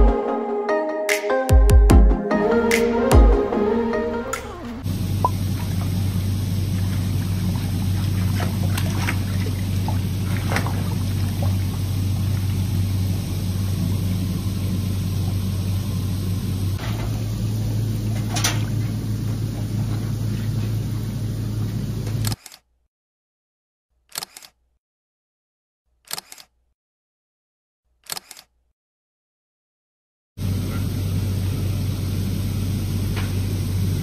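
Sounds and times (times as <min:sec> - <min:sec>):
low pump hum: 0:02.5 - 0:22.2, 0:30.4 - 0:34.0
hot tub water bubbling: 0:04.8 - 0:16.8, 0:17.5 - 0:19.8
small water splashes: 0:05.2 - 0:12.6.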